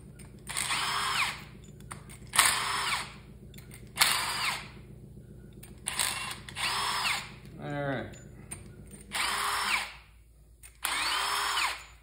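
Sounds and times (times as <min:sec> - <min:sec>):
cordless drill spinning: 0:00.0 - 0:07.5, 0:08.2 - 0:12.0.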